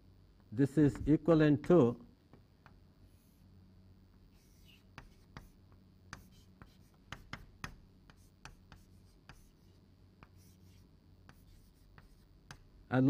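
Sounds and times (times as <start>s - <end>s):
chalk tapping and scraping: 4.3s - 12.7s.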